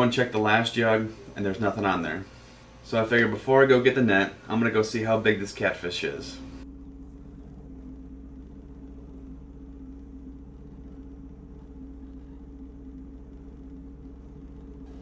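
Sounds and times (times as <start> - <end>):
jet ski engine running: 5.1 - 15.0.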